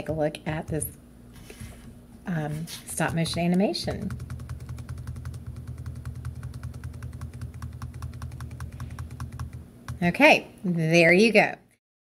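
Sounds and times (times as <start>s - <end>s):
low steady hum: 0.0s - 11.8s
rapid computer mouse clicking: 3.0s - 10.1s.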